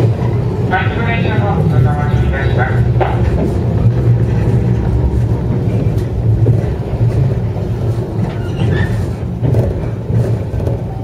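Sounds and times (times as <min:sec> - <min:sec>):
electric train low hum: 0:00.0 - 0:11.0.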